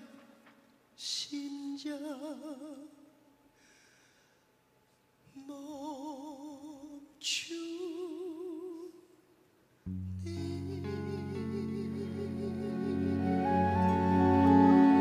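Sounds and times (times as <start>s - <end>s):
instrumental music: 9.9s - 15.0s
man singing long notes with vibrato: 10.0s - 15.0s.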